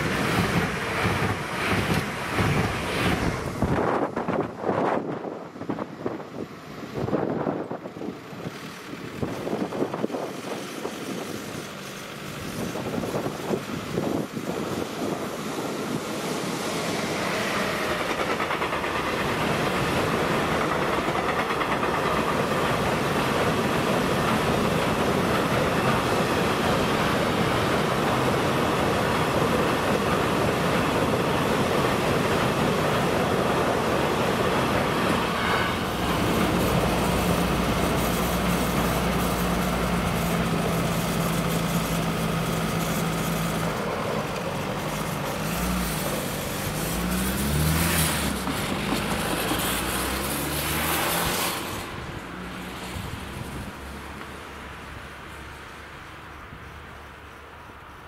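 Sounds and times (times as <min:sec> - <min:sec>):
freight train wheels clattering: 0:15.0 - 0:50.3.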